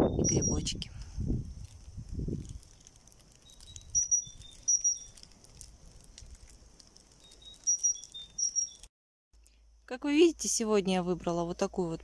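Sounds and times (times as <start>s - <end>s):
high whistled bird calls: 0.0s - 0.6s, 3.4s - 5.2s, 7.2s - 8.9s
light crackles: 0.9s - 9.6s
faint high bird twitter: 3.4s - 5.2s, 7.2s - 8.9s.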